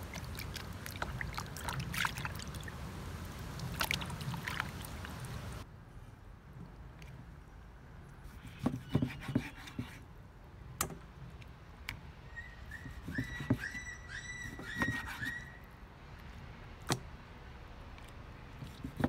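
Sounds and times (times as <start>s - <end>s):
high-pitched animal call: 12.3s - 15.6s.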